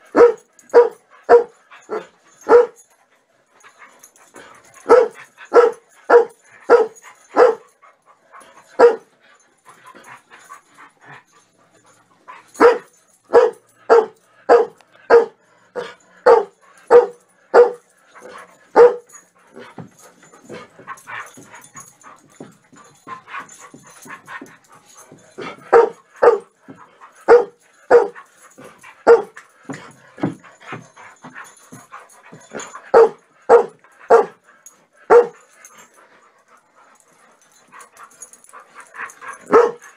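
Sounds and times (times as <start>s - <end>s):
dog barking: 0.1s - 2.8s, 4.8s - 7.6s, 8.8s - 9.0s, 12.6s - 17.8s, 18.7s - 19.1s, 25.4s - 26.5s, 27.2s - 28.2s, 29.0s - 29.4s, 32.9s - 34.4s, 35.1s - 35.4s, 39.4s - 39.8s.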